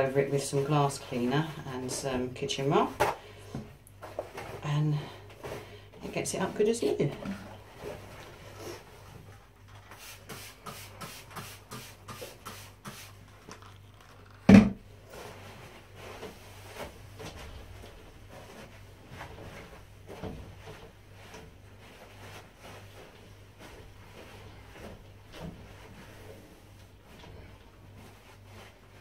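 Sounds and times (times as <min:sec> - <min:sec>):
spray bottle squirting: 0:09.9 - 0:13.7.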